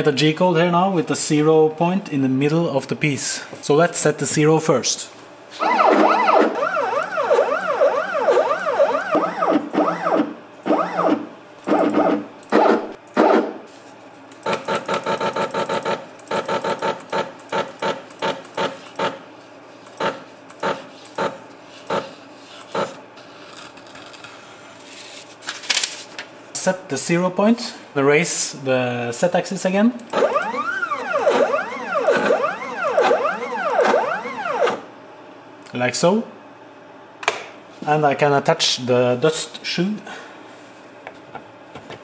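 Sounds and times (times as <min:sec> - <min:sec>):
stepper motor whine: 0:05.6 - 0:12.8, 0:30.1 - 0:34.9
short tonal motor bursts: 0:30.1 - 0:34.8.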